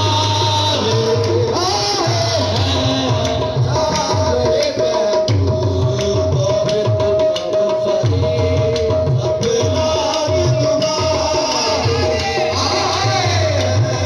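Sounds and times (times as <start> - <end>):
tabla beat: 0.0 - 14.0
sharp handclaps: 3.2 - 7.6.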